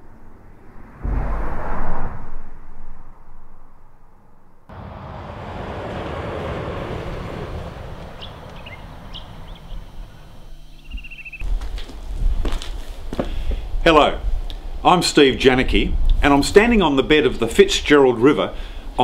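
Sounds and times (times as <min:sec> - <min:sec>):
truck passing over bridge: 0:00.0 - 0:10.6
low rumble under bridge deck: 0:00.0 - 0:19.0
bird chirps: 0:08.1 - 0:11.4
bird trill: 0:08.2 - 0:11.4.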